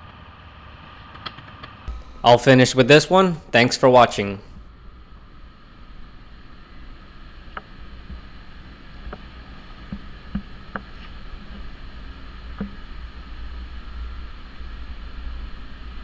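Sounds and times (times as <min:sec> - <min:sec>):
workshop low rumble: 0:01.9 - 0:04.6.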